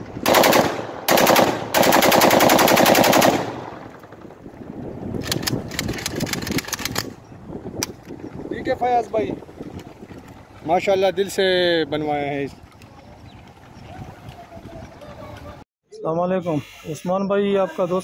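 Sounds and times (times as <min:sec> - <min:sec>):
rifle firing full-auto bursts: 0:00.2 - 0:04.0.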